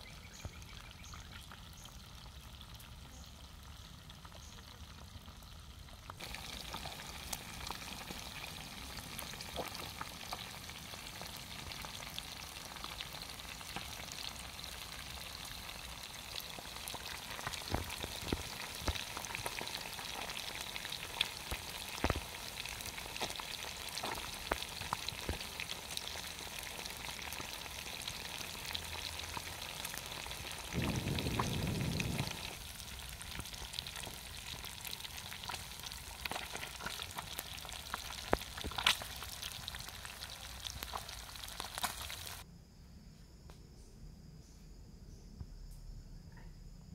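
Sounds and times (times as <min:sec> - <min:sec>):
fish deep-frying in oil: 0:00.0 - 0:42.4
oil popping and crackling: 0:00.0 - 0:42.4
low rumble: 0:30.7 - 0:32.6.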